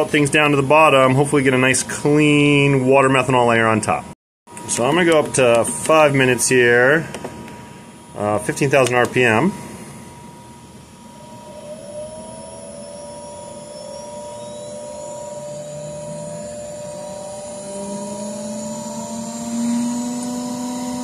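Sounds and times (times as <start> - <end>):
centrifuge motor whine rising: 4.6 - 21.0.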